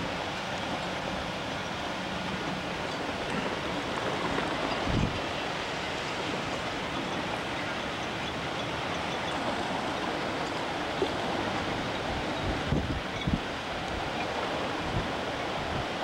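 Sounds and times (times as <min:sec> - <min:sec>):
hurricane wind rushing: 0:00.0 - 0:16.0
wind gusts hitting microphone: 0:02.1 - 0:07.4, 0:09.4 - 0:16.0.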